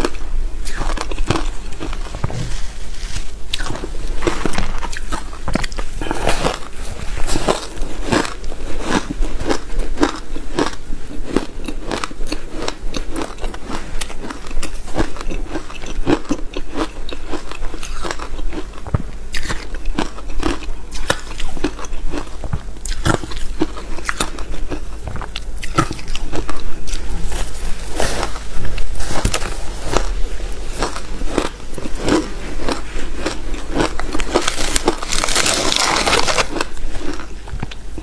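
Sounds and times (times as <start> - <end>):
chewing crunchy shaved ice: 0.0 - 38.0.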